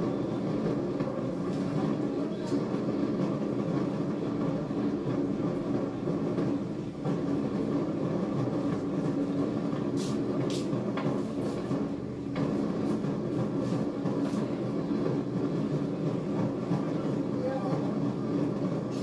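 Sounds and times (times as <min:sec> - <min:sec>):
crowd marching: 0:00.0 - 0:19.0
brief hissy sounds: 0:10.0 - 0:10.7.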